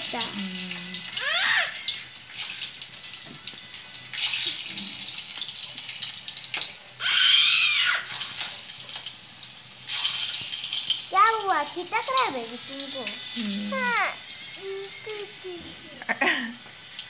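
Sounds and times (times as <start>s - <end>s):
spices sizzling in hot oil: 0.0s - 17.0s
high-pitched voice: 11.1s - 16.1s.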